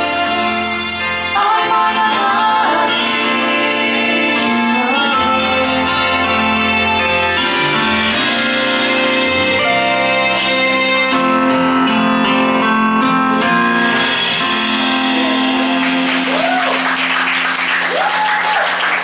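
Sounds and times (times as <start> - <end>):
keyboard and piano chords: 0.0 - 17.8
audience applause: 15.2 - 19.0.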